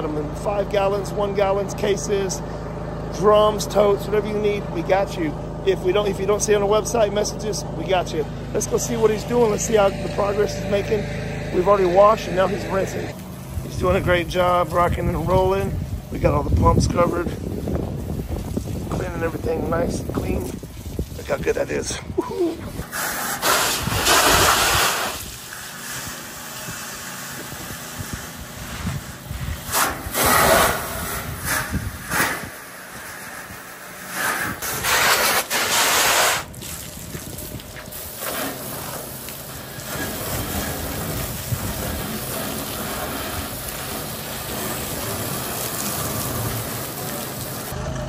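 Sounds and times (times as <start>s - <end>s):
pressure washer spray hissing: 22.8s - 36.9s, 37.7s - 47.7s.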